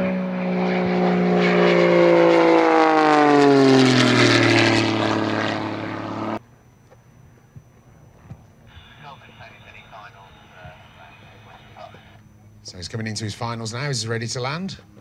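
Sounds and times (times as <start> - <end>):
propeller plane flying past: 0.0 - 6.6, 10.8 - 15.0.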